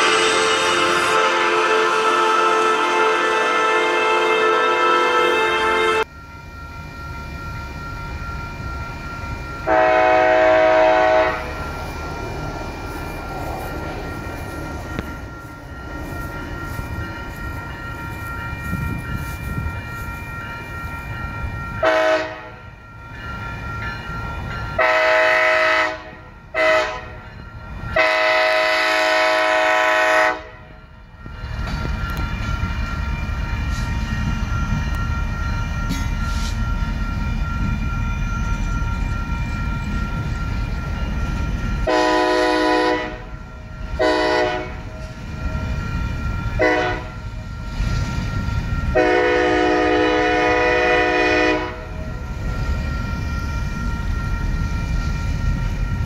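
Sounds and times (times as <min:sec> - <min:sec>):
locomotive air horn blasts: 0:00.0 - 0:06.0, 0:09.6 - 0:11.6, 0:21.8 - 0:22.6, 0:24.8 - 0:27.2, 0:27.9 - 0:30.7, 0:41.8 - 0:43.3, 0:44.0 - 0:44.9, 0:46.6 - 0:47.2, 0:48.9 - 0:52.0
low rumble of locomotives rolling: 0:00.0 - 0:56.0.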